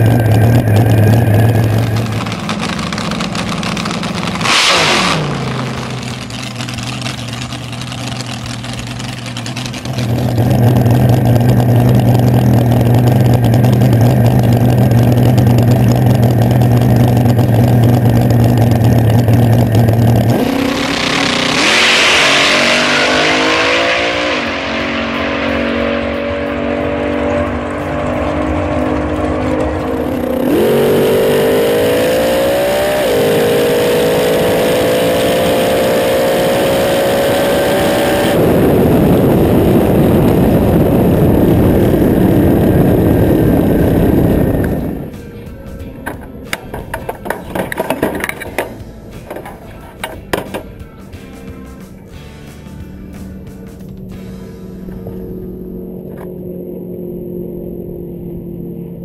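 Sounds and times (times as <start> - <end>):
dragster engine revving: 0.0 - 45.2
wind noise: 36.8 - 45.1.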